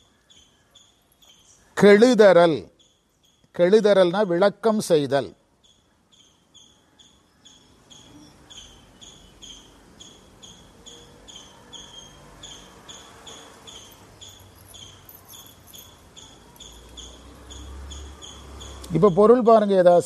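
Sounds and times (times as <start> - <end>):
faint insect chirping: 0.0 - 19.8.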